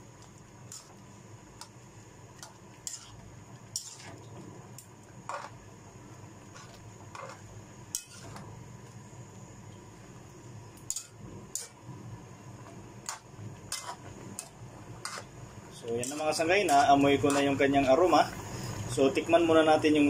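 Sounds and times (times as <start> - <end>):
low steady hum: 0.0 - 20.0
metal ladle scraping a wok: 2.8 - 3.2, 3.8 - 4.2, 5.3 - 5.6, 6.5 - 8.4, 13.1 - 15.3, 16.0 - 17.6.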